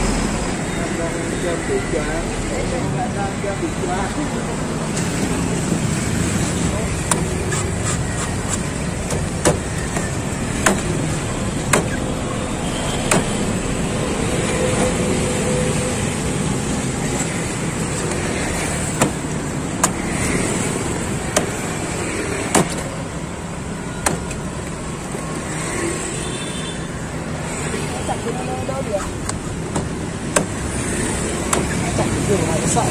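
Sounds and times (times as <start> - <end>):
street traffic noise: 0.0 - 32.9
machete chopping coconut: 7.0 - 7.7, 10.6 - 10.9, 11.7 - 12.0, 21.3 - 21.6, 22.5 - 22.8, 29.8 - 30.6, 31.5 - 31.8.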